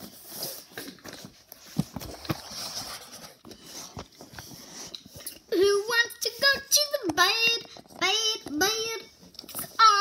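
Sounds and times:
rustling on foam mat: 0.0 - 5.3.

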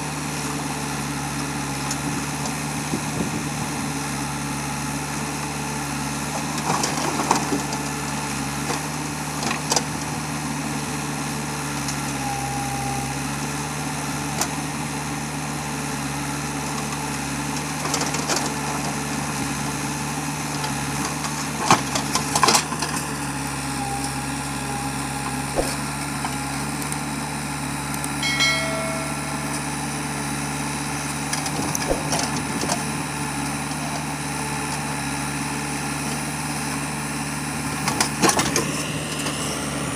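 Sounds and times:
diesel engine running: 0.0 - 39.9
digger bucket knocks and clanks: 37.8 - 38.8.

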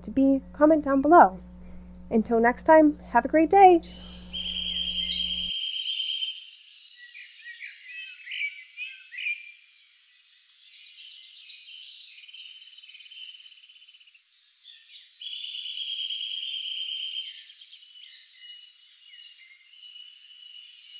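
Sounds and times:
chorus of small animals calling: 4.3 - 5.5.

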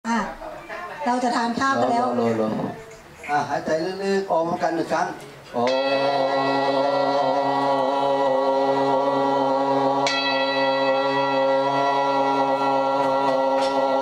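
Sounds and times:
meditation drone: 5.6 - 14.0
bell struck: 5.7 - 7.8, 10.0 - 14.0.

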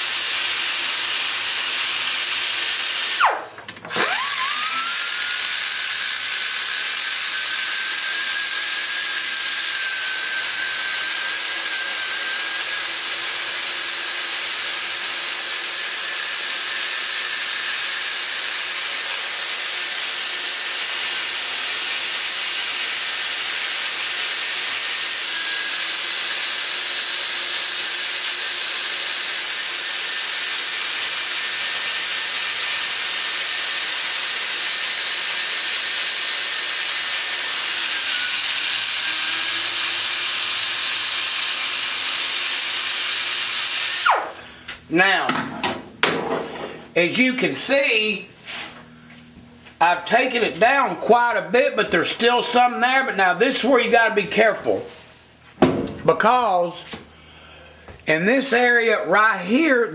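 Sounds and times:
die grinder whining: 0.0 - 44.8.

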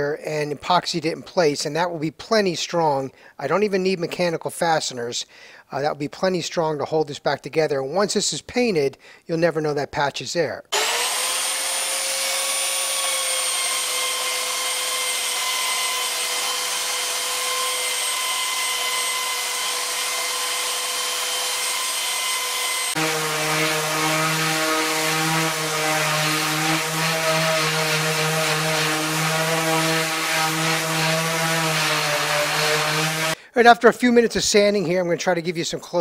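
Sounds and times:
belt sander whining: 10.7 - 33.4
oscillating sander buzzing hum: 10.8 - 33.4.

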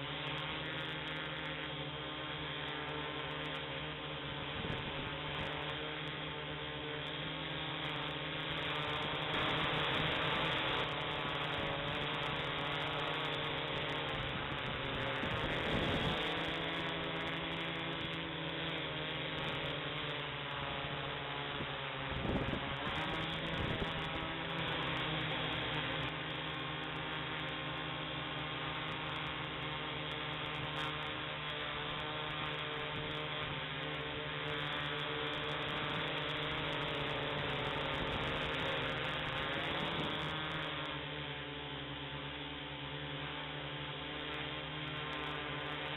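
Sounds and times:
quadcopter propellers humming: 0.0 - 45.9.

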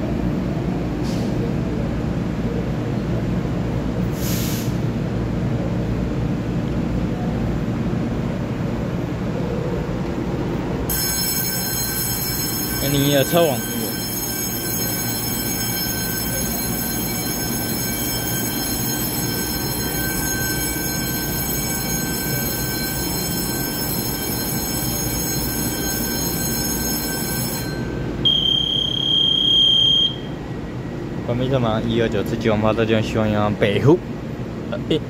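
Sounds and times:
train humming at platform: 0.0 - 35.0
electronic buzzer tone: 25.2 - 30.3.

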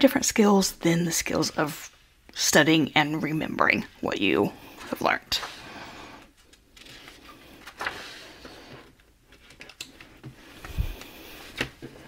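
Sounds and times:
paper pages rustling: 4.8 - 12.0.

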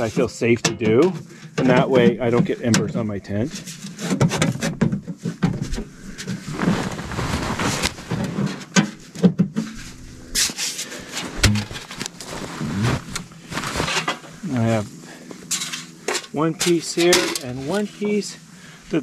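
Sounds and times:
metal pipes clanking and scraping: 15.5 - 18.2.

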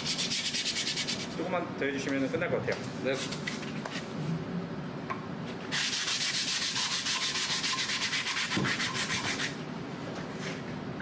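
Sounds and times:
sandpaper rubbing on wood: 0.0 - 1.4, 5.7 - 9.6.

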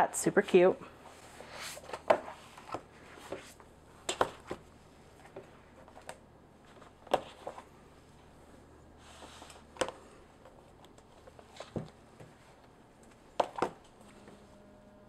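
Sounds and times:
paper sliding: 1.1 - 3.6.

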